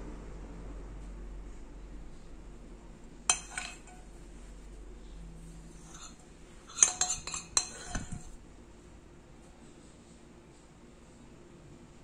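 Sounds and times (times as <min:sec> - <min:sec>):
metal spoon clinking on glass bowl: 0:03.3 - 0:04.1, 0:05.8 - 0:08.4.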